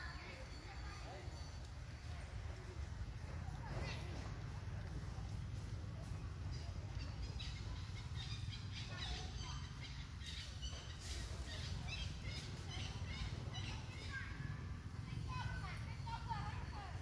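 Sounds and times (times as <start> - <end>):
small birds chirping: 3.5 - 17.0.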